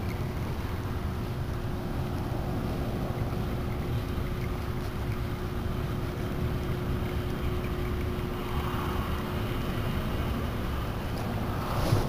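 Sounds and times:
wind rumbling on microphone: 0:08.0 - 0:12.0.

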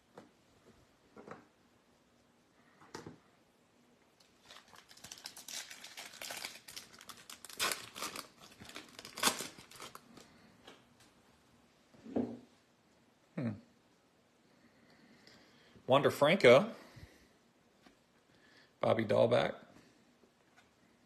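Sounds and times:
foil wrapper ripping: 0:04.2 - 0:10.2
foil wrapper crinkling: 0:04.2 - 0:10.3.

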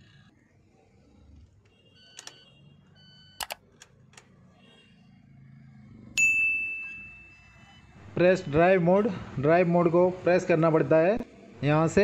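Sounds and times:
ignition key clicks: 0:03.4 - 0:04.0.

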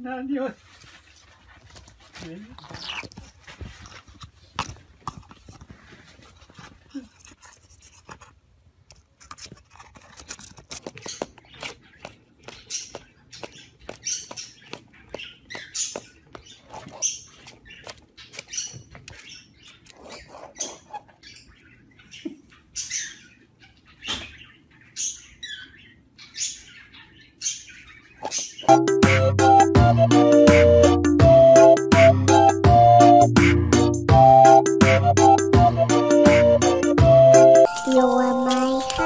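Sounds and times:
parrot chirping: 0:11.0 - 0:28.8.

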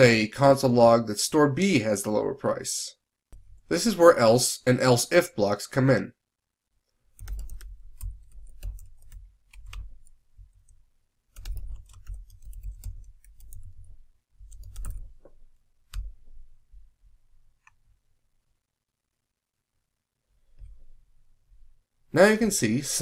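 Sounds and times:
typing on keyboard: 0:07.1 - 0:16.2.

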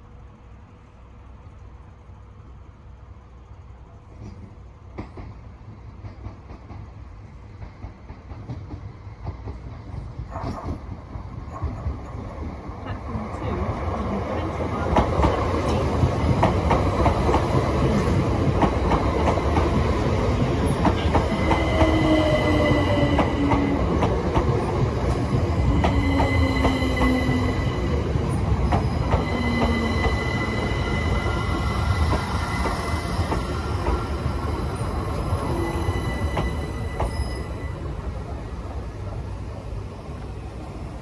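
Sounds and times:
train wheels rumbling over rails: 0:00.0 - 0:41.0
train high whining tones: 0:12.8 - 0:38.8.

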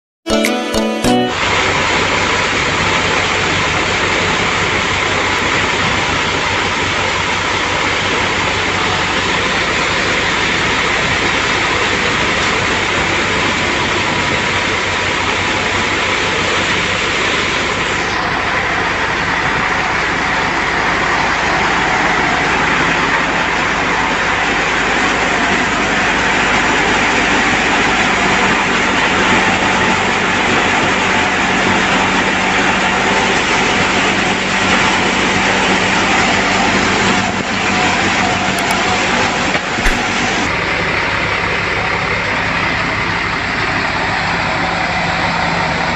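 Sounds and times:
thresher machine running: 0:01.4 - 0:40.5
tractor engine running: 0:01.4 - 0:45.9.

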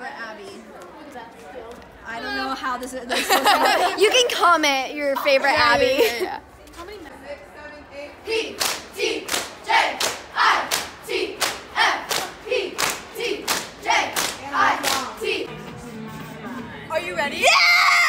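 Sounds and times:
cheerleaders chanting in unison: 0:08.2 - 0:15.5
rhythmic clapping: 0:08.6 - 0:15.4.

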